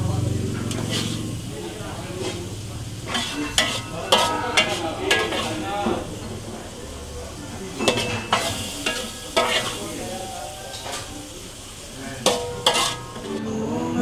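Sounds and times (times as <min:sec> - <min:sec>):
low sizzle from pan: 0:00.0 - 0:14.0
metal spoon scraping a wok: 0:00.6 - 0:06.1, 0:07.8 - 0:11.2, 0:12.2 - 0:13.4.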